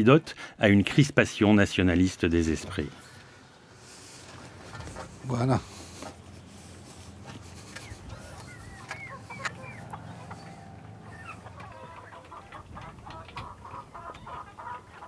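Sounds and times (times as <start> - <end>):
chickens clucking: 3.1 - 15.0.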